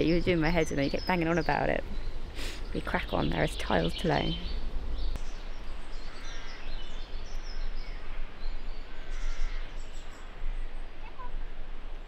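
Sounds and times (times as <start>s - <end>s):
small birds chirping: 0.0s - 11.4s
low outdoor rumble: 0.0s - 12.0s.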